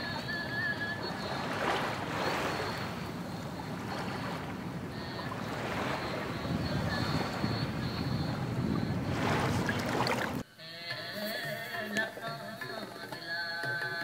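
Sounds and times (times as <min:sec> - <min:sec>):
wind on microphone: 0:00.0 - 0:10.4
water lapping at shore: 0:00.0 - 0:10.5.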